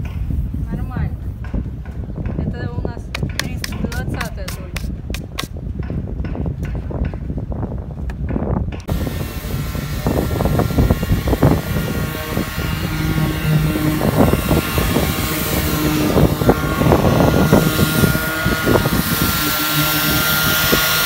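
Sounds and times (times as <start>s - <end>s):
polishing machine motor drone: 8.9s - 21.0s.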